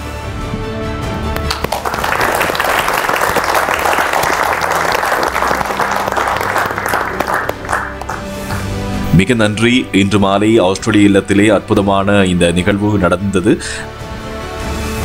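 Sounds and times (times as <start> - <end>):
crowd applauding: 1.3 - 8.9.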